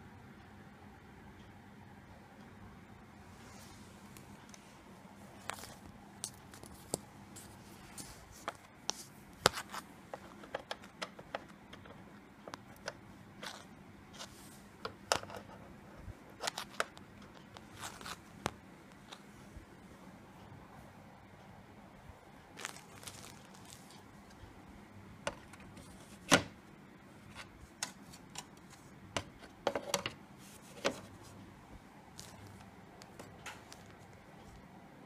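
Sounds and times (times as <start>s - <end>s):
paper crinkling and rustling: 5.4s - 11.2s, 16.4s - 19.3s, 22.5s - 24.0s, 32.1s - 34.1s.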